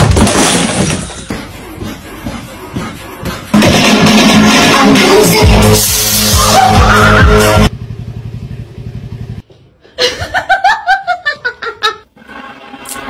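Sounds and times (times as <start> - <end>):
loud music: 3.1 - 7.7
person laughing: 10.0 - 12.1.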